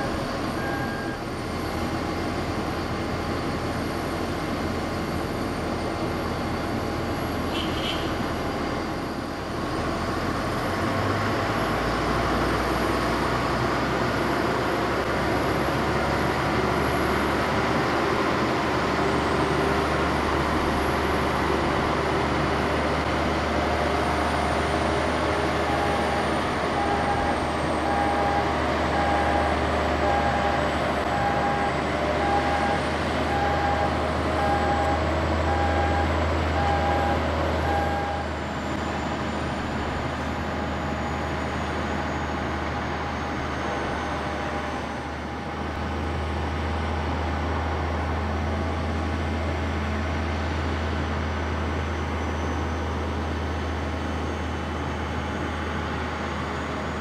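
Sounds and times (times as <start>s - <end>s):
beeping warning tone: 0.0s - 1.4s, 25.6s - 38.8s
jet aircraft and tug engine noise: 0.0s - 57.0s.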